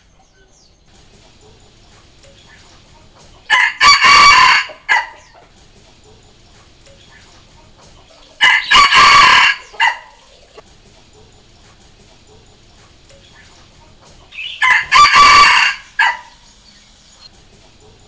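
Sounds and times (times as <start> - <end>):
rooster crowing: 3.3 - 6.2, 8.2 - 10.6, 14.3 - 16.8.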